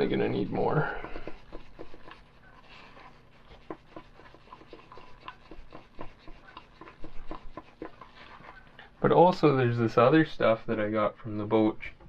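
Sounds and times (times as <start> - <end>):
stir stick scraping plastic cup: 0.0 - 11.4.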